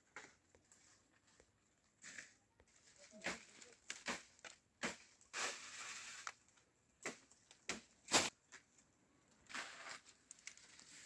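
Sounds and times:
leaves rustling: 2.7s - 8.4s, 9.5s - 11.0s
blade chopping leafy branches: 3.0s - 6.0s, 7.0s - 8.4s.

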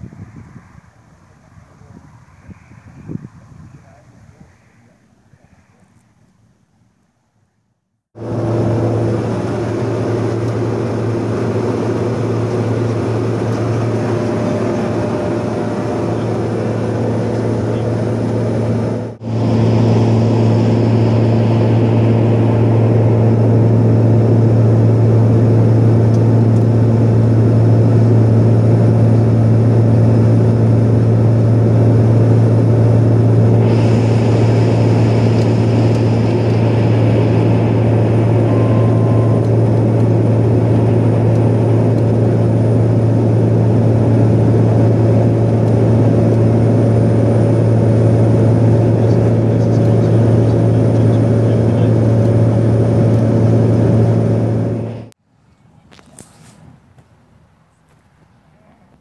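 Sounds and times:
airflow noise: 0.0s - 6.3s, 8.2s - 55.2s
turboprop cabin drone: 8.2s - 55.2s
high hiss: 33.5s - 39.6s.

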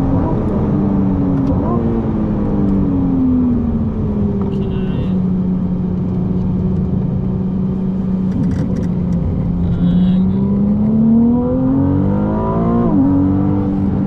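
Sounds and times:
car engine accelerating: 0.0s - 14.0s.

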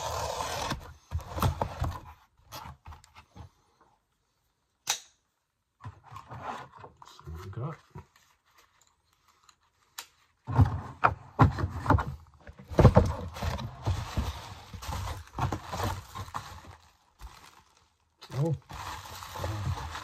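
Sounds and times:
plastic bag rustling and crinkling: 12.7s - 20.0s.

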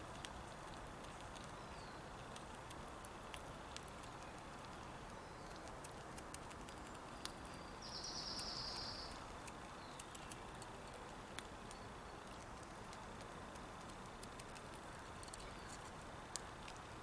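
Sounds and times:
squirrel gnawing clicks: 0.0s - 17.0s
faint bird chirps: 4.2s - 5.7s, 6.8s - 9.2s, 11.6s - 12.3s, 15.2s - 15.9s
small bird trilling: 7.8s - 9.2s.

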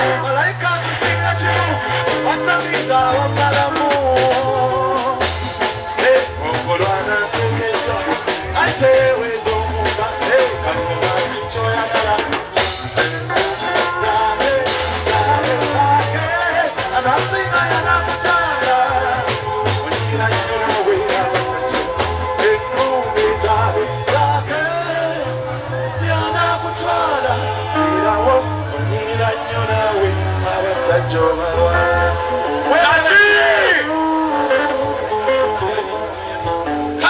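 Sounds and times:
drum kit: 0.0s - 25.1s
bass guitar: 0.0s - 37.0s
electric guitar: 0.0s - 37.0s
man singing: 0.0s - 37.0s.

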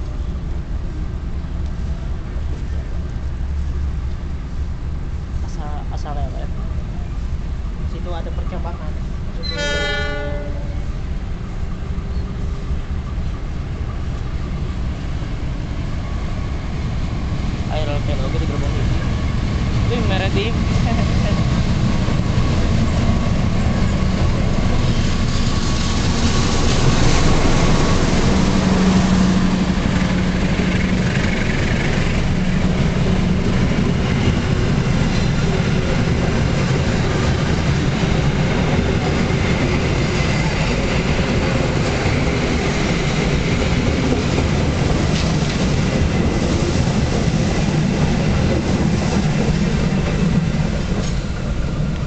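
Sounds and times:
diesel locomotive passing: 0.0s - 52.0s
train coaches clattering on rails: 5.3s - 52.0s.

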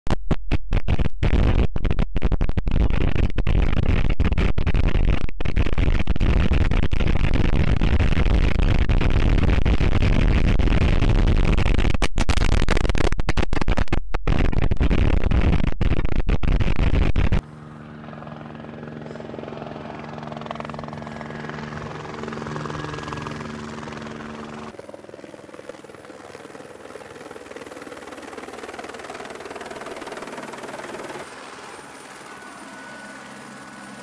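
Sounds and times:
helicopter engine and rotor hum: 17.4s - 34.0s.

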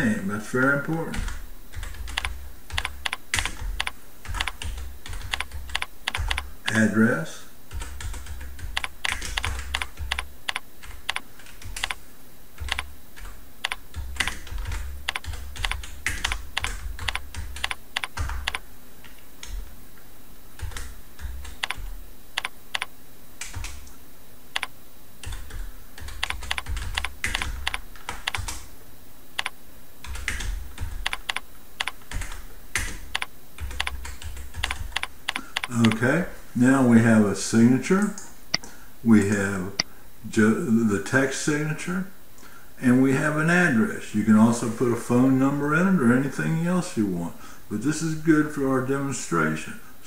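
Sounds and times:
typing on keyboard: 1.1s - 6.8s, 7.7s - 12.0s, 12.6s - 18.6s, 20.6s - 23.8s, 24.6s - 28.6s, 29.4s - 36.0s.

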